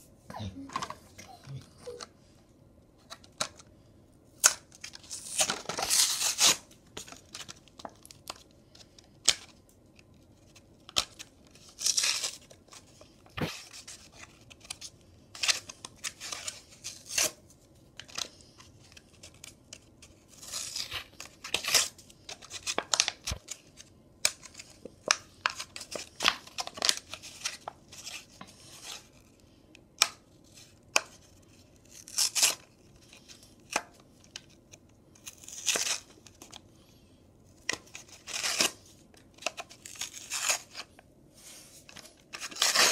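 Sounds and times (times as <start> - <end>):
cardboard tearing: 5.0 - 6.6, 39.5 - 40.8, 42.3 - 42.9.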